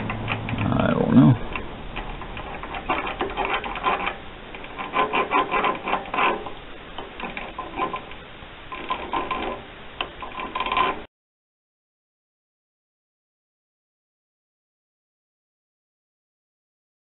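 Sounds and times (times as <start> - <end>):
lathe gears clattering: 0.0 - 11.1.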